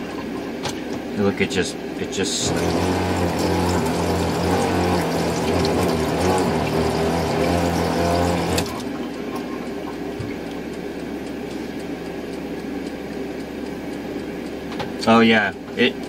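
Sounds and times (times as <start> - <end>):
steady hum: 0.0 - 16.0
electric water pump running: 2.1 - 14.4.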